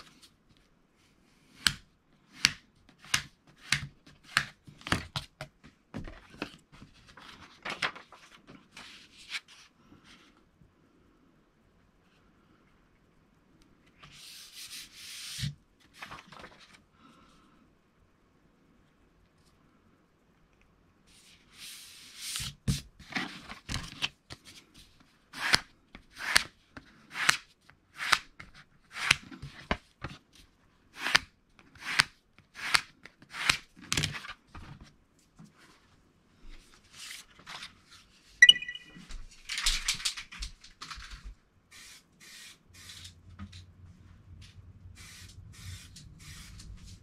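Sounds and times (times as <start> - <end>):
paper rustling: 6.0 - 9.7, 14.0 - 16.8, 39.4 - 41.4.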